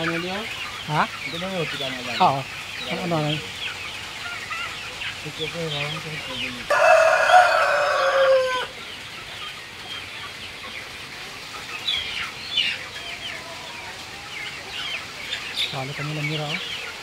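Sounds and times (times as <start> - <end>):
chickens clucking: 0.0 - 17.0
rooster crowing: 6.6 - 8.8.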